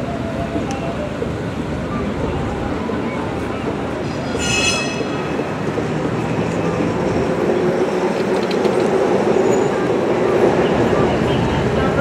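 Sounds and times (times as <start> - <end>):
road vehicles passing: 0.0 - 12.0.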